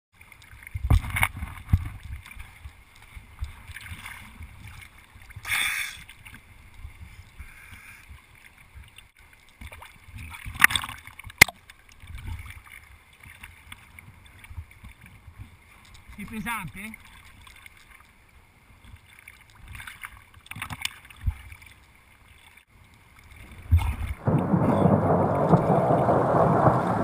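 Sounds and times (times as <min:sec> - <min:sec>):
water splash: 0:00.2 - 0:06.5, 0:09.5 - 0:15.1, 0:18.9 - 0:27.0
water lapping and sloshing: 0:00.2 - 0:27.0
low uneven rumble: 0:22.7 - 0:27.0.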